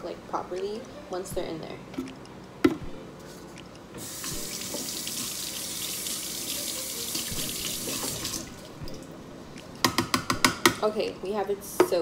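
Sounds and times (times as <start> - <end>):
tap water pouring: 4.0 - 9.1.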